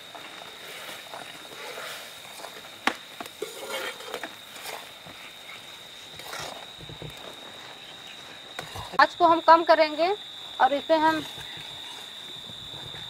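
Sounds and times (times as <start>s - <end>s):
syrup boiling and bubbling: 0.0s - 9.0s
high insect drone: 0.0s - 13.0s.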